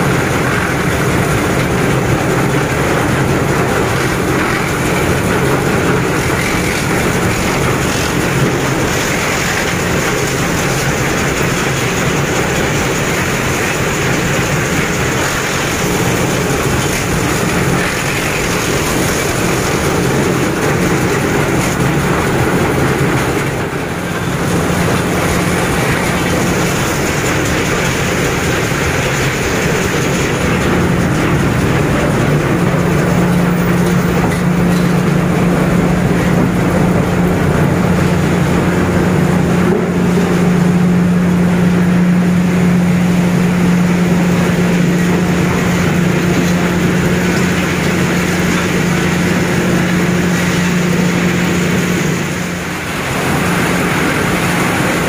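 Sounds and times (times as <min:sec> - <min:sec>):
low motor hum: 0:00.0 - 0:55.0
wood crusher shredding wood: 0:00.0 - 0:55.0.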